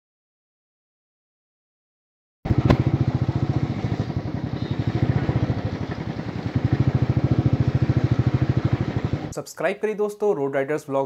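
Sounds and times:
motorcycle engine idling: 0:02.5 - 0:09.3.

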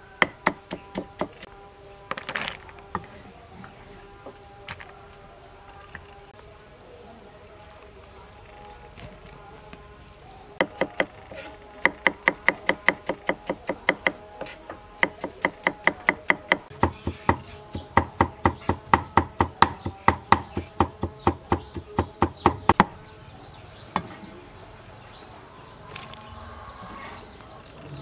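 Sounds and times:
cleaver chopping meat on wood: 0:00.2 - 0:01.4, 0:10.6 - 0:11.2, 0:11.8 - 0:14.3, 0:15.0 - 0:23.0.

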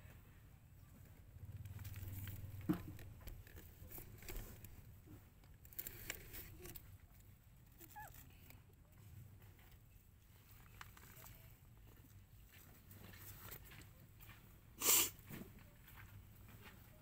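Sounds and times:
puppy squeaks: 0:07.8 - 0:08.2.

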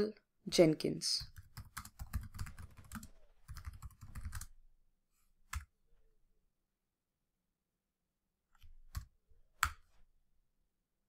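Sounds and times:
keyboard typing: 0:01.2 - 0:04.6, 0:08.6 - 0:09.8.

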